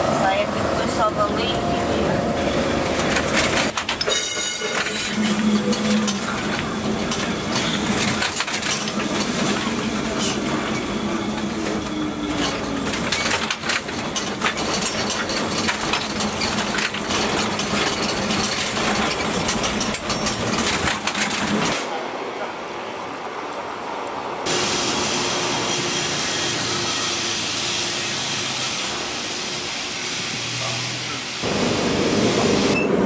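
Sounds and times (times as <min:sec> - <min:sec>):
tram body rattling and creaking: 0:00.0 - 0:22.0
wheels clicking over rails: 0:02.8 - 0:10.8, 0:11.4 - 0:21.9.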